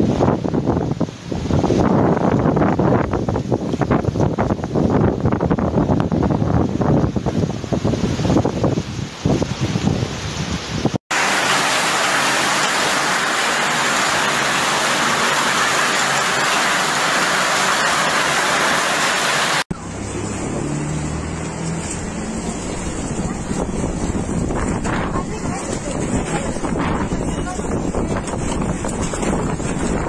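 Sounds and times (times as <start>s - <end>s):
wind blowing on microphone: 0.0s - 11.0s, 21.4s - 30.0s
heavy rain pouring: 0.0s - 30.0s.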